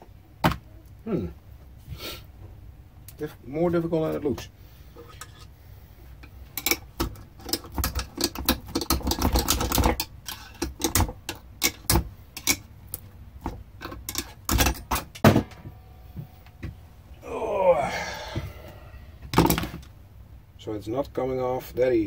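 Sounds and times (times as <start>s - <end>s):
hand tools clicking and knocking: 6.6s - 12.7s, 13.4s - 15.7s.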